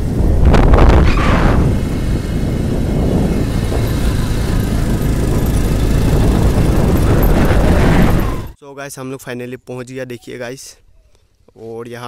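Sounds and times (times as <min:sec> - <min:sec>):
vehicle rumble: 0:00.0 - 0:08.6
wind buffeting microphone: 0:00.0 - 0:08.6.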